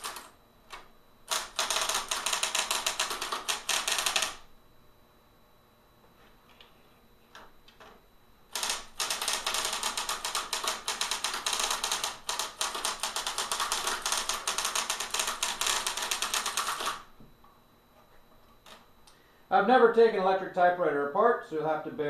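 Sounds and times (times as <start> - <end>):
electric typewriter clacking: 0.0 - 4.4, 8.5 - 17.1.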